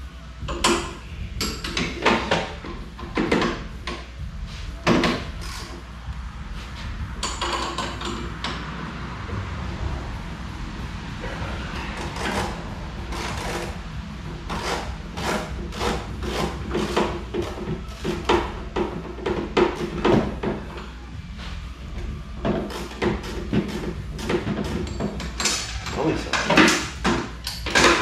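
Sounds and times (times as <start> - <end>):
metal tools clanking and scraping: 22.5 - 28.0.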